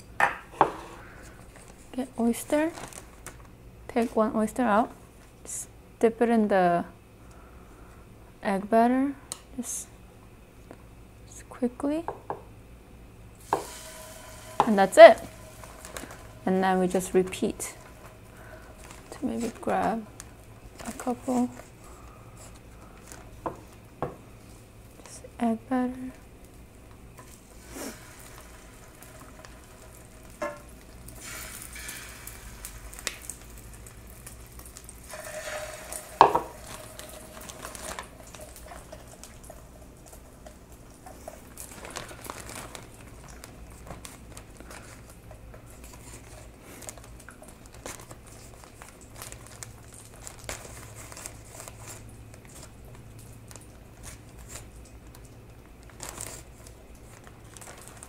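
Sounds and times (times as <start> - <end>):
food sizzling in oil: 13.4 - 21.6, 26.4 - 40.7.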